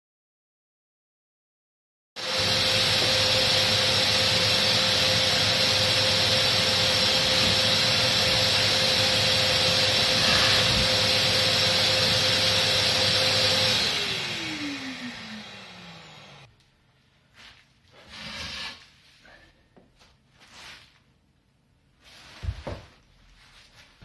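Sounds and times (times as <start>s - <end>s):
core drill whining: 2.2s - 16.5s
motor winding down: 2.4s - 16.5s.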